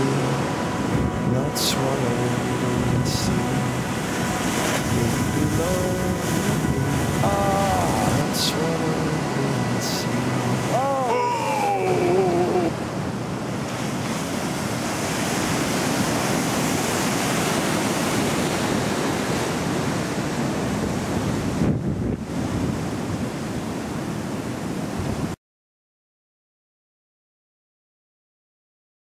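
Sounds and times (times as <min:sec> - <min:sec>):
falling pitched sound: 0:00.0 - 0:13.1
ocean surf breaking: 0:00.0 - 0:25.4
wind noise on microphone: 0:00.0 - 0:25.4.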